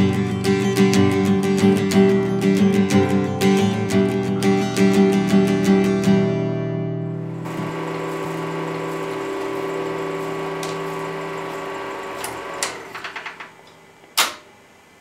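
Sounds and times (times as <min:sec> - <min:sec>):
film projector whirring: 0:07.2 - 0:15.0
projector clicks: 0:10.2 - 0:14.5.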